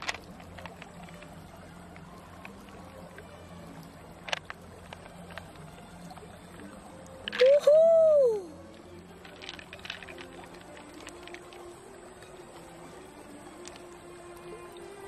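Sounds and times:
fingers handling wet mussel flesh: 0.0s - 6.3s, 7.1s - 7.6s, 9.0s - 11.9s
low steady hum: 0.0s - 15.0s.

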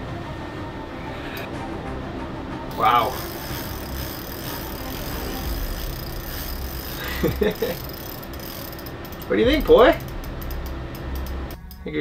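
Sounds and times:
furnace humming: 0.0s - 12.0s
fishing reel being cranked: 2.7s - 11.4s.

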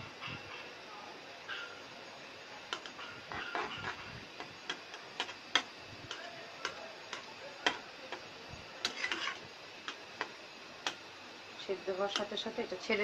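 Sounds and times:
spatula tapping a metal pan: 2.7s - 4.0s, 4.6s - 11.0s, 12.1s - 12.4s.

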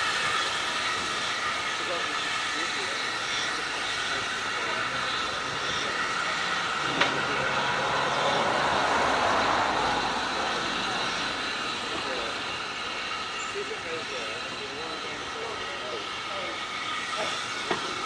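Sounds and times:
steam locomotive hissing: 0.0s - 18.0s.

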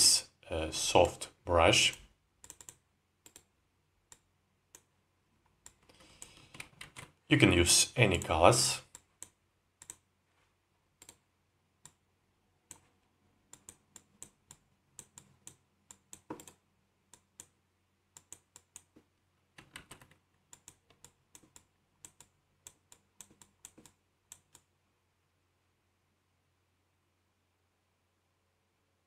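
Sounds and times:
mouse and keyboard clicking: 1.9s - 3.5s, 5.6s - 7.2s, 8.9s - 10.0s, 13.5s - 17.6s, 19.6s - 24.7s.

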